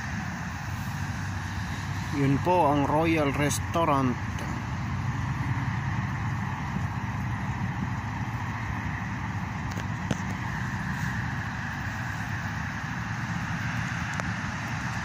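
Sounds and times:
hiss: 0.0 - 2.4, 10.4 - 15.0
outdoor background rumble: 0.0 - 15.0.

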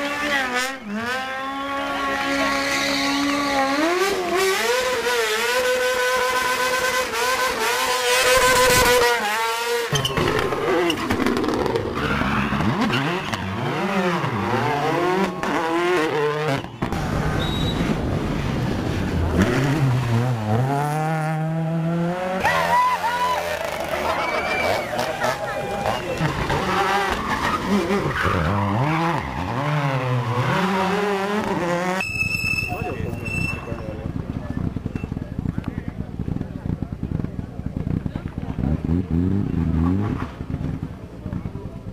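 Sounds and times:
rally car engine revving hard: 0.0 - 32.0, 37.1 - 40.9
tyre squeal: 9.9 - 17.9, 25.7 - 31.0, 32.0 - 34.1.

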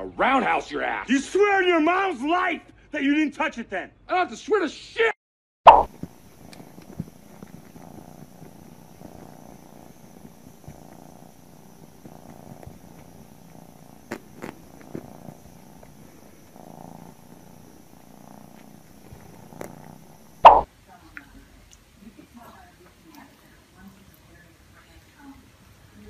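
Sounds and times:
cat purring: 5.8 - 21.4.

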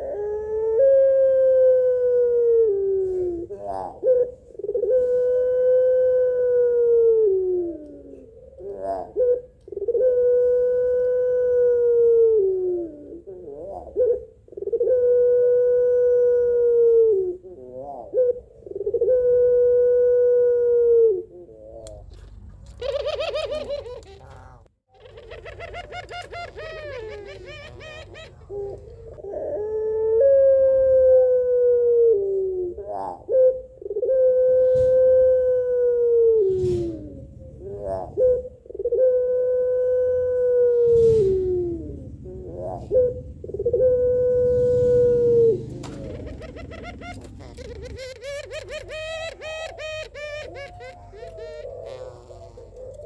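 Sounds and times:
dove cooing: 0.0 - 53.0
wavering dove trills: 22.7 - 53.0.

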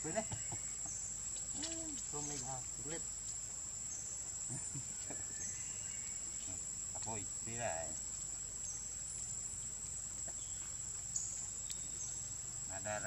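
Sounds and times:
high-pitched insect drone: 0.0 - 3.2.

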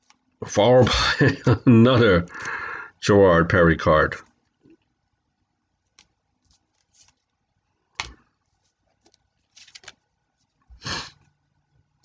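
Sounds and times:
cards rustling: 5.8 - 11.2
cards scraping and tapping: 5.9 - 7.3, 8.0 - 10.6.

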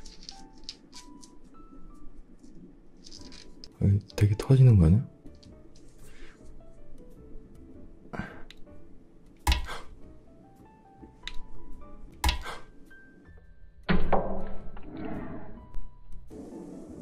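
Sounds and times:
light background music: 0.0 - 17.0
balloon skin snapping: 9.4 - 9.8, 12.2 - 12.6.

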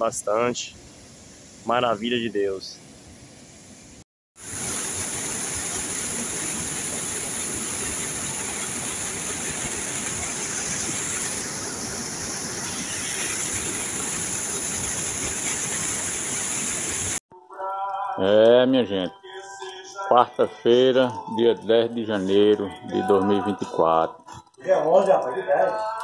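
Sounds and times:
water rushing over spillway: 4.4 - 17.2
water splashing into foam: 4.4 - 17.2.

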